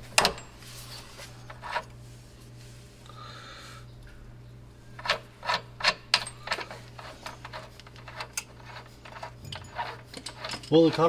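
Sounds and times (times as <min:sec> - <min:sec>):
low steady hum: 0:00.0 - 0:11.0
hand tools scraping: 0:05.0 - 0:11.0.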